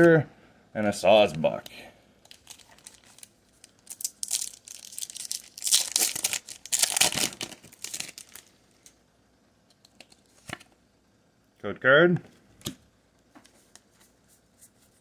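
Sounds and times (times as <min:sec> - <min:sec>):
foil wrapper crinkling and tearing: 0:02.3 - 0:08.6.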